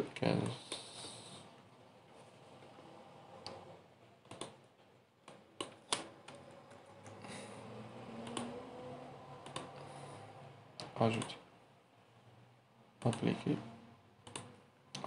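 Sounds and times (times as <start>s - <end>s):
keyboard and mouse clicking: 4.2s - 4.6s, 5.2s - 7.2s, 8.2s - 8.6s, 9.4s - 9.8s, 10.8s - 11.4s, 13.0s - 13.3s, 14.2s - 15.0s.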